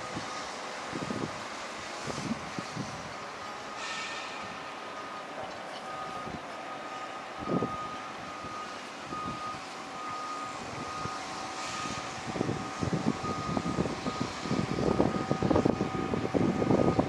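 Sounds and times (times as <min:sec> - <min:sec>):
wind buffeting microphone: 0:00.0 - 0:03.5, 0:07.3 - 0:17.0
heavy machinery hum and whine: 0:00.0 - 0:17.0.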